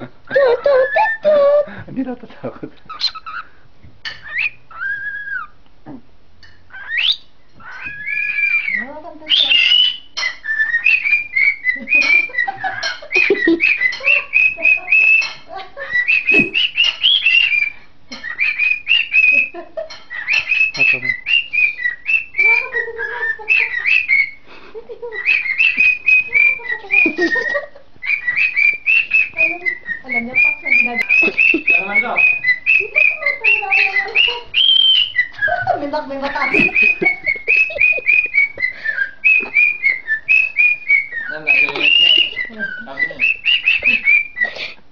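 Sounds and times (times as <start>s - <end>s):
cockatiel whistling and chirping: 2.9s - 5.6s, 6.7s - 24.4s, 25.1s - 35.8s, 36.4s - 44.8s.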